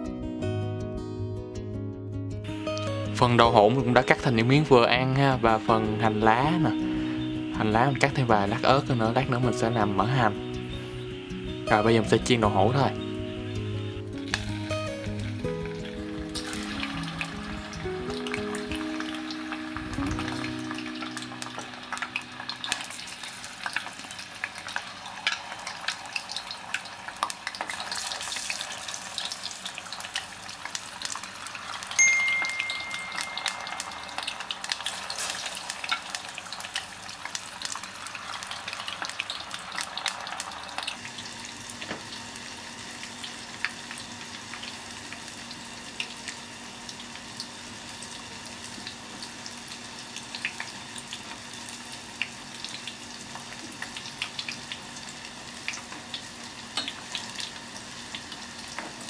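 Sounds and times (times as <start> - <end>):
food sizzling in hot oil: 2.5 - 59.0
bright ding: 32.0 - 34.1.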